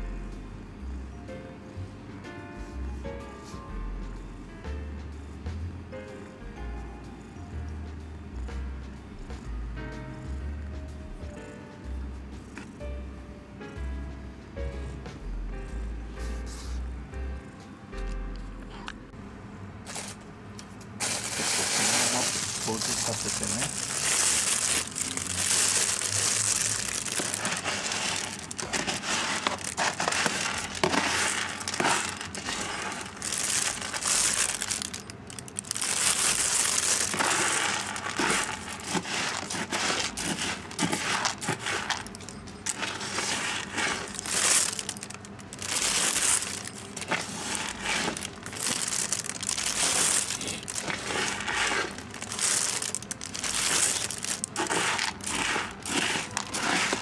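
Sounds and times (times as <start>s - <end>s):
scoop scraping through cat litter: 16.2s - 16.8s, 19.9s - 20.2s, 21.0s - 57.0s
plastic bag crinkling: 19.9s - 20.2s, 20.9s - 57.0s.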